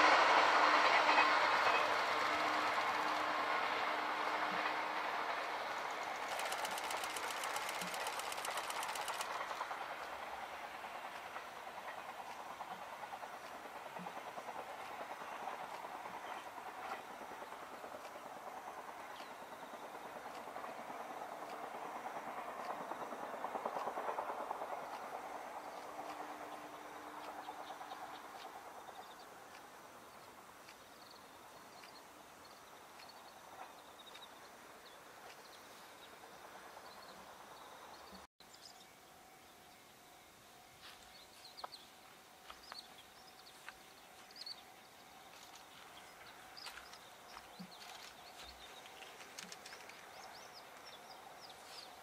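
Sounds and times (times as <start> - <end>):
electric train passing: 0.0 - 52.0
faint steady tone: 36.2 - 48.7.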